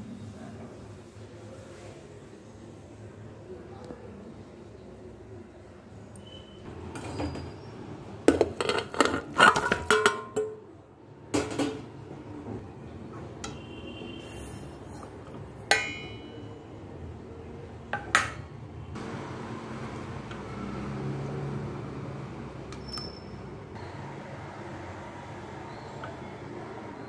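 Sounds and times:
metal utensils clinking: 0:08.3 - 0:10.6, 0:14.4 - 0:16.5.

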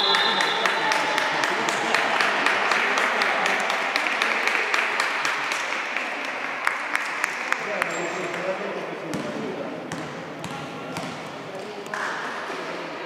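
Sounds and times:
crowd cheering: 0:00.0 - 0:07.7
hand claps: 0:00.0 - 0:08.4.

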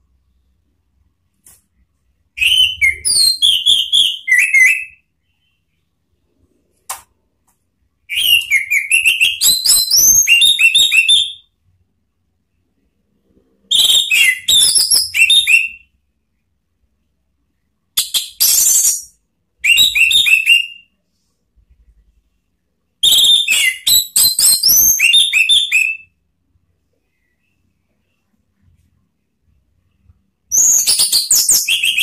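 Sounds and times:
thrush whistled song: 0:02.3 - 0:05.8, 0:08.0 - 0:11.5, 0:13.6 - 0:15.9, 0:18.0 - 0:20.9, 0:23.0 - 0:26.2, 0:30.4 - 0:32.0.

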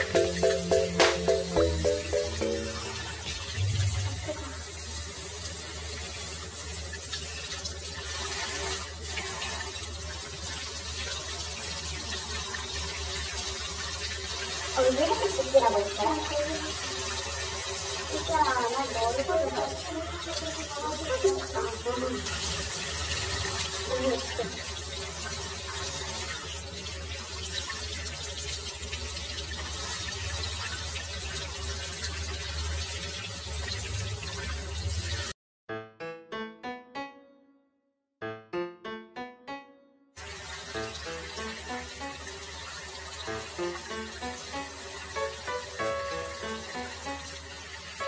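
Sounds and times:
water running from tap: 0:00.0 - 0:35.4, 0:40.2 - 0:48.0
shower sprayer hissing: 0:11.4 - 0:26.8.

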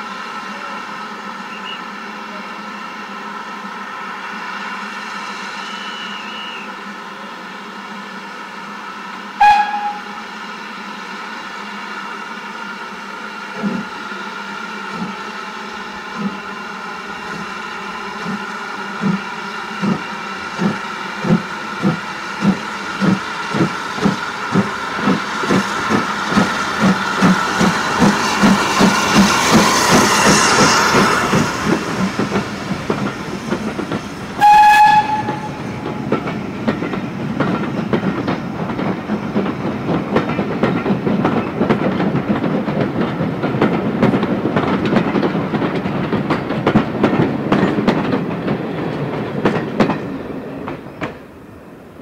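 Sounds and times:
train whistle blast: 0:01.5 - 0:02.0, 0:05.5 - 0:06.8, 0:09.4 - 0:10.3, 0:34.4 - 0:35.7
steam locomotive exhaust beating: 0:07.9 - 0:51.9
train wheels clicking over rail joints: 0:13.5 - 0:14.0, 0:14.9 - 0:51.4.

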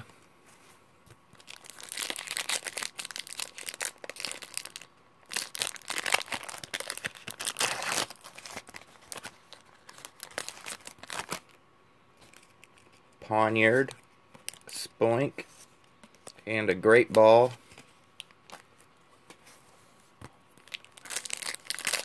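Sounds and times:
foil wrapper tearing and crinkling: 0:01.4 - 0:11.5, 0:20.6 - 0:22.0.

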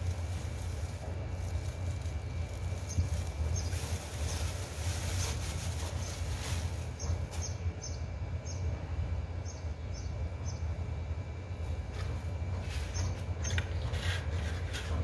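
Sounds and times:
rustling: 0:00.0 - 0:07.5
low outdoor hum: 0:00.0 - 0:15.0
birds chirping: 0:01.4 - 0:11.1, 0:12.8 - 0:13.9.

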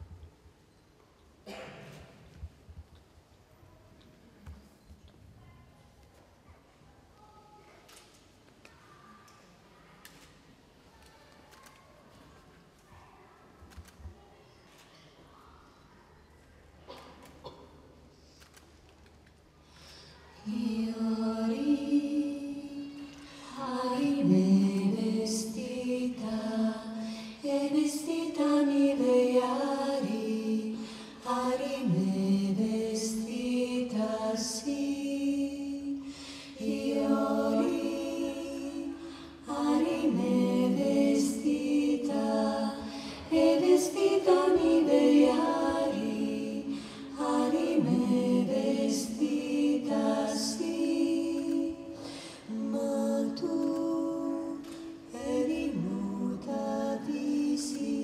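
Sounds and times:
women singing a cappella: 0:20.0 - 0:58.0.

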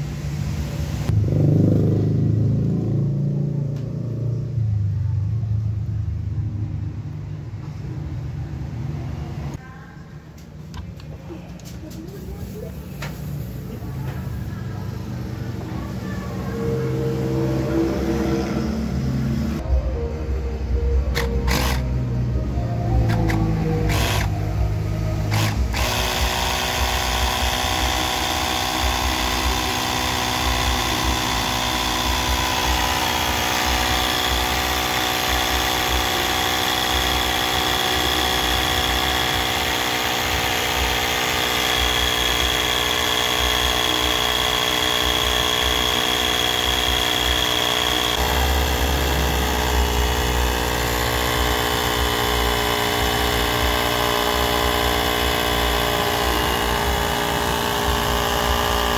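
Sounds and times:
electric tyre inflator buzzing: 0:21.0 - 0:58.9.

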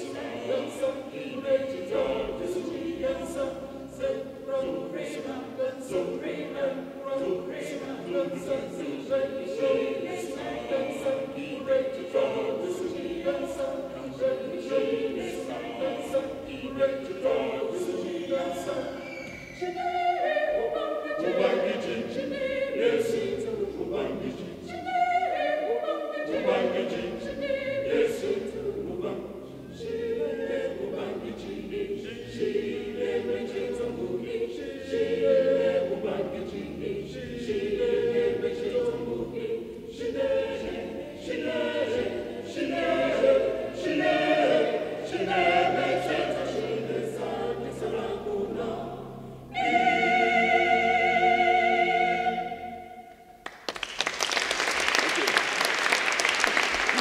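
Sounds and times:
mixed choir singing: 0:00.0 - 0:57.0
audience applause: 0:53.4 - 0:57.0.

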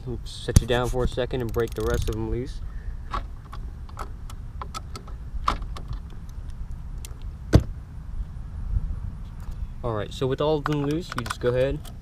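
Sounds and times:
ratchet clicking: 0:01.4 - 0:02.3.

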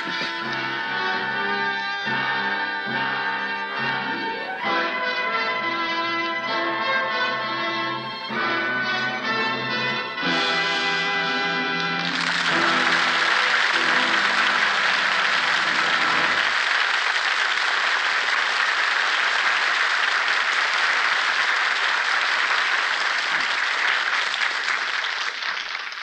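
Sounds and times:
audience applauding: 0:00.0 - 0:04.7, 0:08.3 - 0:26.0
orchestra music: 0:00.0 - 0:17.3.

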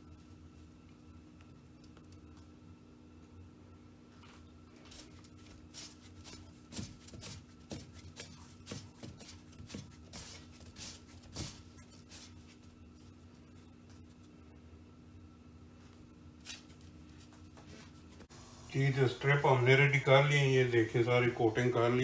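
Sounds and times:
flour scuffing and rustling: 0:04.7 - 0:14.4.

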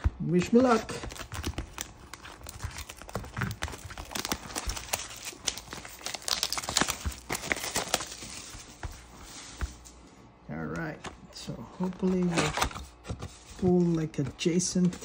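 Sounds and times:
plastic shrink wrap crinkling: 0:00.6 - 0:09.1.

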